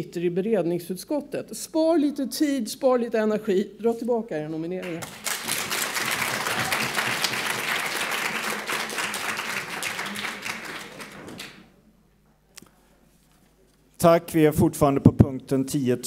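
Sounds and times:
audience applauding: 0:04.8 - 0:11.7.

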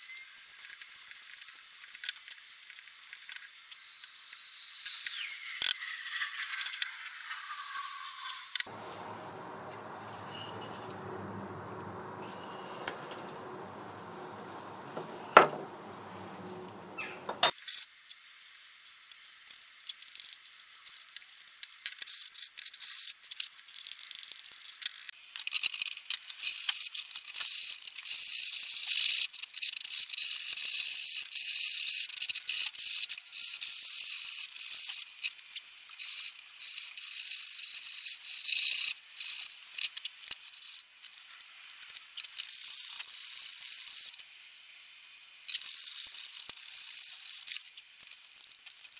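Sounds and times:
sharp knocks: 0:08.7 - 0:17.5.

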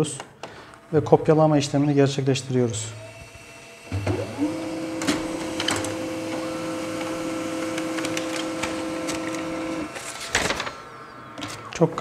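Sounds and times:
laser printer humming: 0:00.8 - 0:11.8
paper feed clicks: 0:03.9 - 0:10.8.

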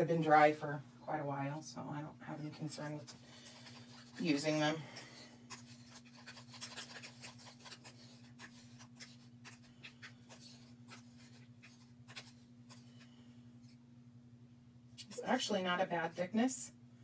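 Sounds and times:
low electrical hum: 0:00.0 - 0:17.0
stick scraping paint in plastic cup: 0:02.4 - 0:12.9.

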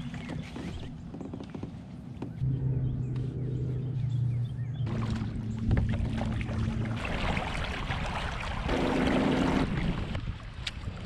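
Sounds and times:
low hum of pedal drive: 0:00.0 - 0:07.6
water rushing along hull: 0:04.8 - 0:11.0.

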